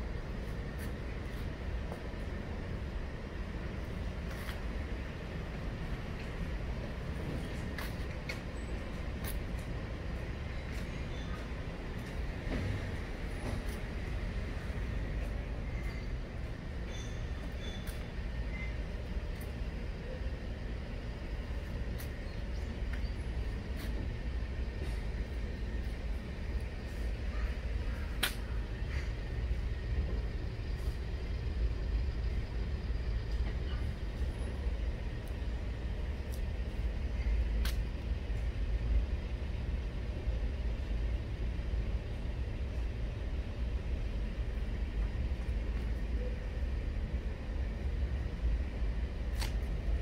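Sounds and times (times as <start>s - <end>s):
low outdoor rumble: 0.0s - 50.0s
faint sharp click: 28.2s - 28.5s, 37.6s - 37.8s.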